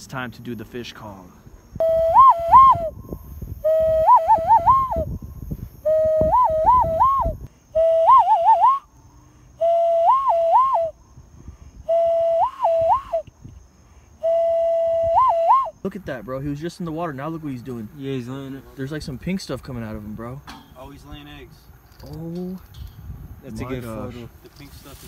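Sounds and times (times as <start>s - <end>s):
hand whistle hooting: 1.8s - 5.2s, 5.8s - 8.9s, 9.6s - 11.0s, 11.8s - 13.4s, 14.2s - 15.8s.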